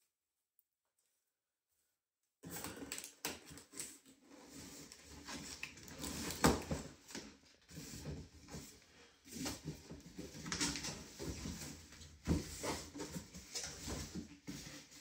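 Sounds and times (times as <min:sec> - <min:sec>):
cardboard box rustling and scraping: 0:07.7 - 0:15.0.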